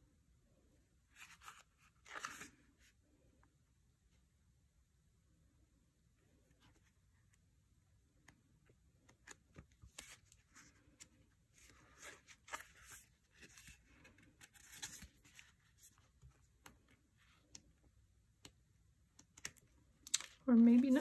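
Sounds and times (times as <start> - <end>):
paper rustling: 1.1 - 2.6.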